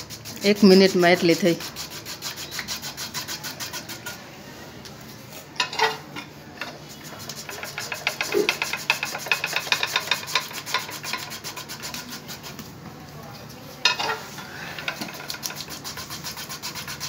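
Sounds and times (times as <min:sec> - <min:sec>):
slicer blades shaving potato: 0:00.0 - 0:04.1, 0:15.2 - 0:17.0.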